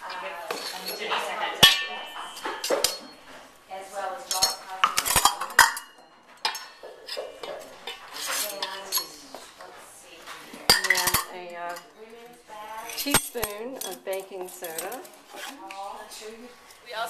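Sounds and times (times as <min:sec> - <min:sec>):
metal utensils clinking on bowls: 0:00.0 - 0:17.0
sharp ringing metal strike: 0:01.6 - 0:03.2.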